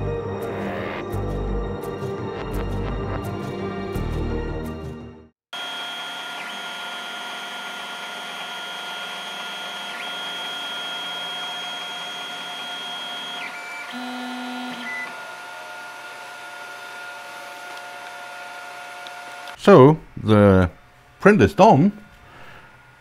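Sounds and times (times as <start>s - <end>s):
stepper motors whining: 5.6s - 19.6s.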